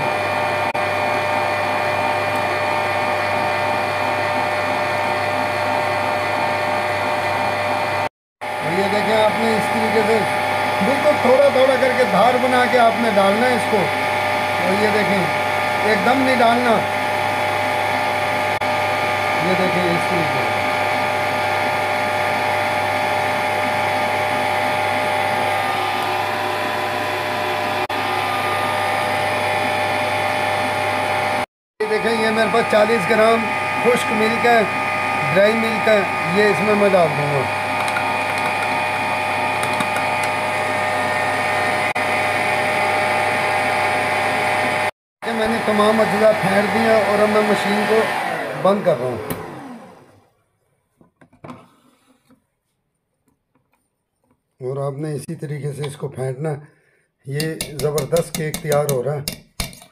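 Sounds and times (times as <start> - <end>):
stand mixer whirring: 0.0 - 50.3, 57.6 - 58.9
whisk beating batter in steel bowl: 8.7 - 25.5, 32.0 - 41.0, 57.3 - 59.9.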